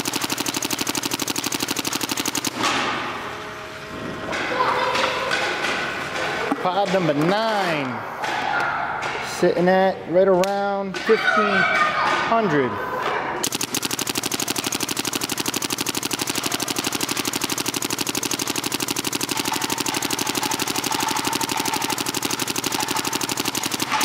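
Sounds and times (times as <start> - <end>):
paintball marker rapid firing: 0.0 - 3.1, 13.4 - 24.0.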